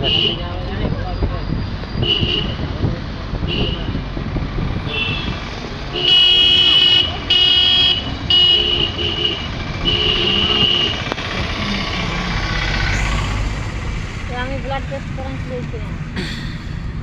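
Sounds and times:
road traffic and engines: 0.0s - 17.0s
vehicle horn honking: 2.0s - 2.6s, 4.9s - 11.1s.

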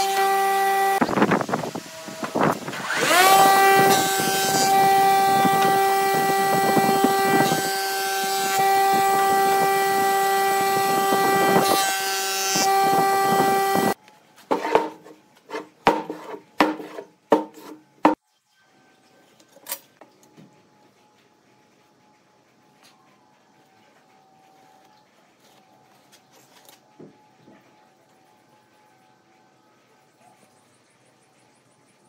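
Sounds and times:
planer motor whining: 0.0s - 14.0s
wood block being cut: 0.0s - 18.2s.

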